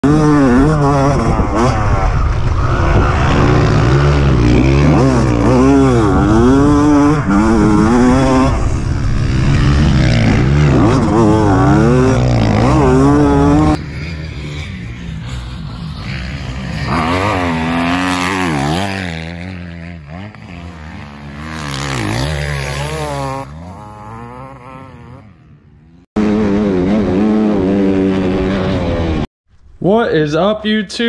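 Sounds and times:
dirt bike engine revving: 0:00.0 - 0:29.3.

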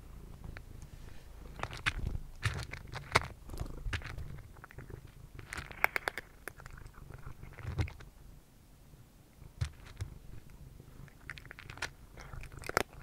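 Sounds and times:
cat crunching dry kibble: 0:01.4 - 0:08.1, 0:09.4 - 0:13.0.

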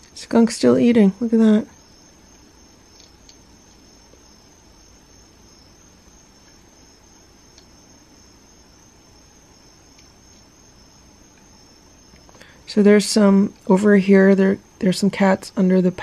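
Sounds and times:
crickets trilling: 0:00.0 - 0:16.0
low background hiss: 0:00.0 - 0:16.0
faint ticks: 0:02.3 - 0:04.3, 0:07.5 - 0:07.8.

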